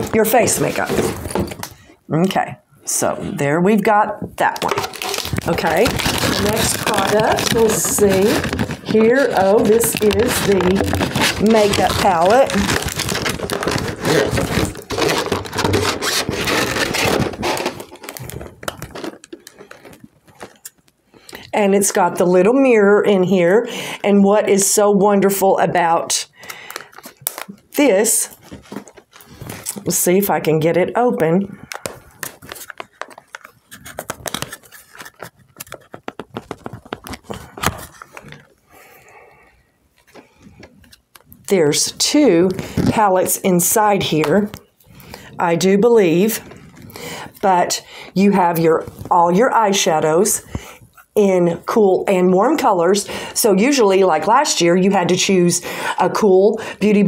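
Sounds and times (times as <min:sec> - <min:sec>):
rustling and scraping with clicks: 0:04.4 - 0:21.0, 0:28.3 - 0:29.9, 0:31.6 - 0:38.6.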